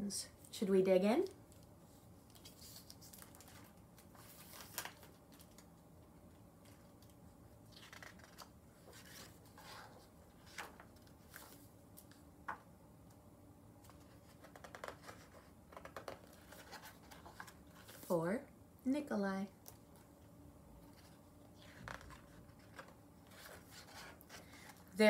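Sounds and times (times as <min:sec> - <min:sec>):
book pages turning: 0:02.2 - 0:05.7, 0:06.6 - 0:12.6, 0:13.8 - 0:18.1, 0:20.8 - 0:24.9.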